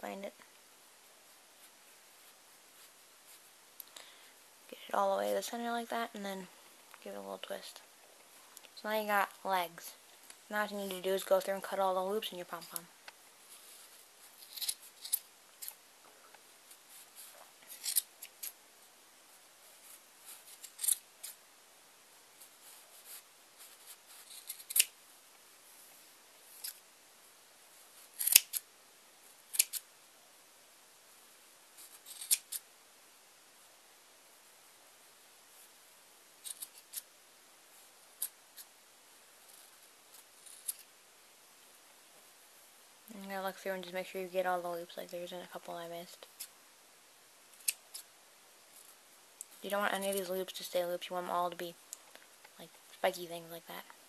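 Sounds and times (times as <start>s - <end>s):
scissors snipping yarn: 28.2s - 28.6s, 29.5s - 29.8s, 31.8s - 32.6s, 47.6s - 48.0s.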